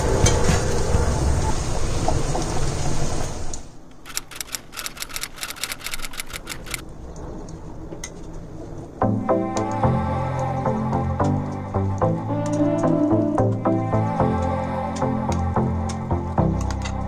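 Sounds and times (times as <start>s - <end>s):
typewriter keystrokes clacking: 4.1s - 6.8s.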